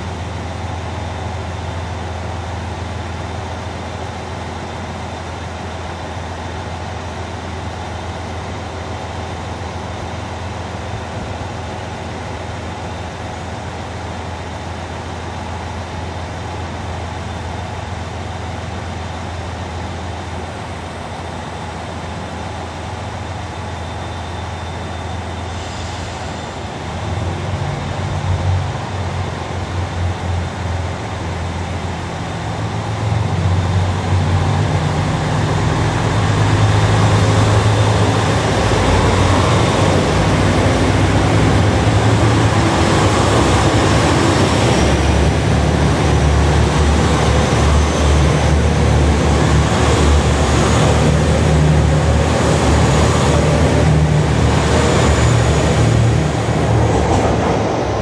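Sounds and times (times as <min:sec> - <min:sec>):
diesel train engines accelerating: 0:00.0 - 0:58.0
train cars rolling past: 0:21.4 - 0:58.0.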